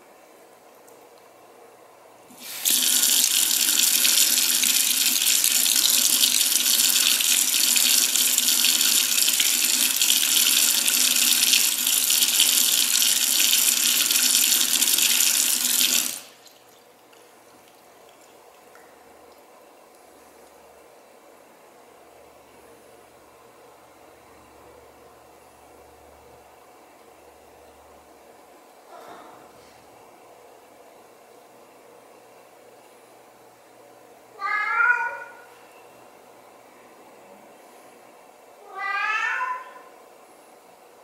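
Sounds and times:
faucet water running into sink: 0:02.3 - 0:16.9.

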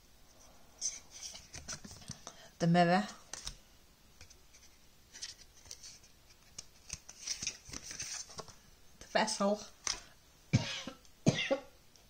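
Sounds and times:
cards rustling and flicking: 0:00.8 - 0:02.3, 0:03.2 - 0:03.6, 0:04.2 - 0:09.2, 0:09.8 - 0:10.1.

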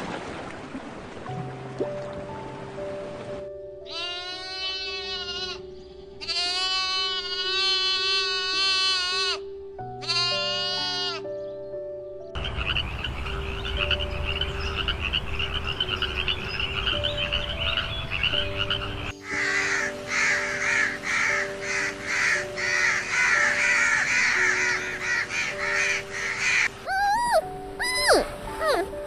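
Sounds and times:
frogs croaking: 0:03.9 - 0:11.6, 0:12.4 - 0:29.0
crow cawing: 0:19.2 - 0:28.9.

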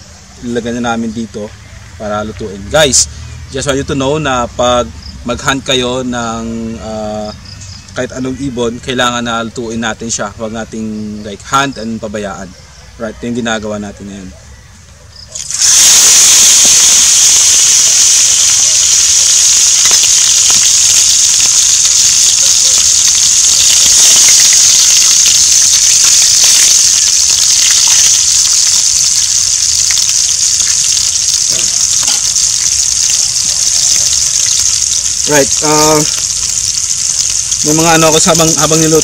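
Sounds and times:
meat sizzling in hot oil: 0:15.2 - 0:39.0
oil popping: 0:15.3 - 0:39.0.

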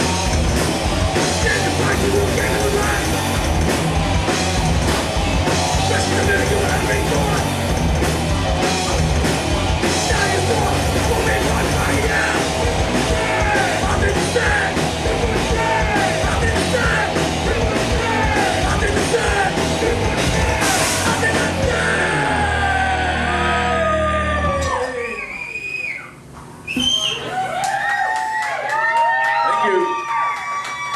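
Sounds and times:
yelled vocals: 0:00.0 - 0:24.6
live rock band: 0:00.0 - 0:24.9.

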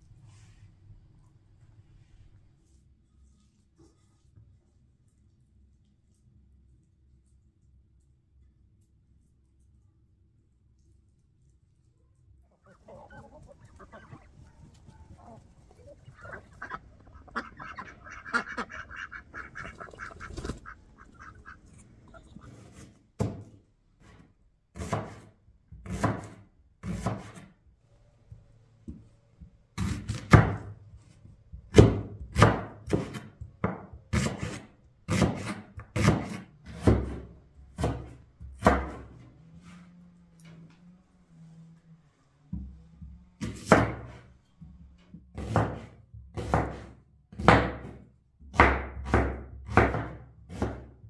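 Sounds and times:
fowl calling: 0:12.5 - 0:22.6.

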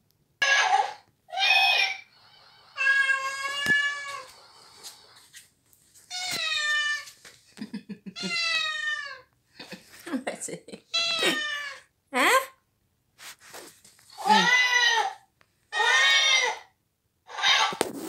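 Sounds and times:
toy cat meowing: 0:00.4 - 0:02.0, 0:02.8 - 0:04.3, 0:06.1 - 0:07.1, 0:08.2 - 0:09.2, 0:14.2 - 0:16.7, 0:17.3 - 0:17.8.

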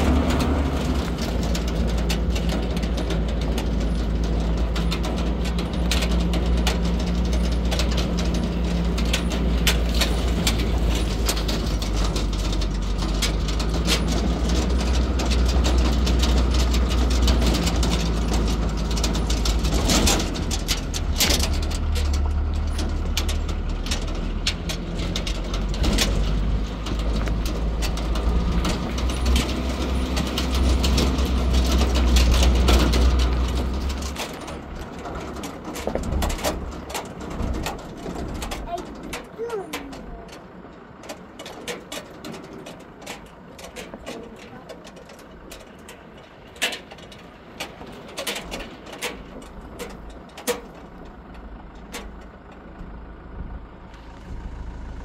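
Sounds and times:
rattling clicks: 0:00.0 - 0:53.2
engine running: 0:00.0 - 0:55.0.

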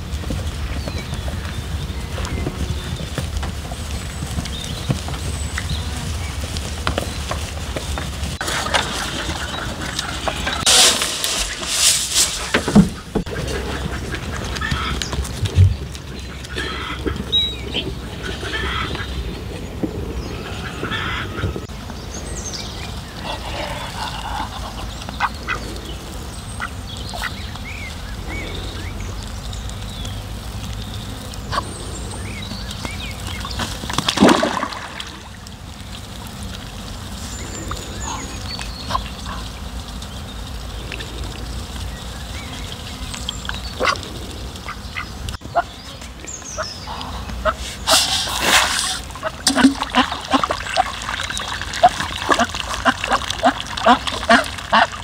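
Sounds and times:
ducks pecking: 0:00.0 - 0:55.0
ducks calling: 0:04.7 - 0:19.6, 0:20.2 - 0:21.7, 0:22.8 - 0:29.8, 0:37.1 - 0:39.8, 0:42.4 - 0:55.0.

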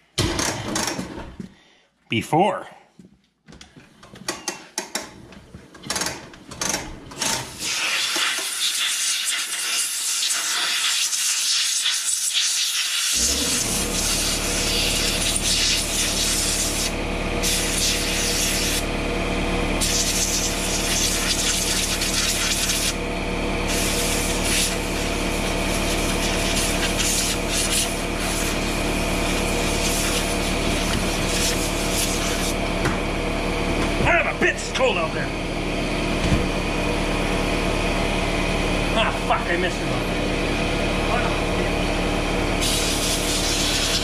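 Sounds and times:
high-pressure spray hissing: 0:07.6 - 0:18.8
machine humming: 0:13.2 - 0:44.0.

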